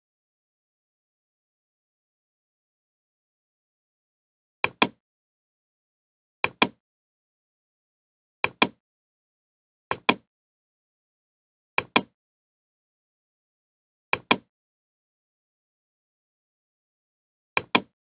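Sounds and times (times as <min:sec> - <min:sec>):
computer mouse double clicks: 0:14.2 - 0:14.5, 0:17.6 - 0:17.9.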